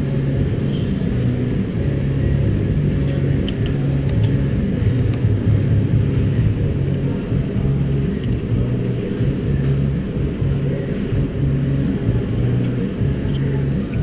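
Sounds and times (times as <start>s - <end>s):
muffled rock music bass: 0.0s - 14.0s.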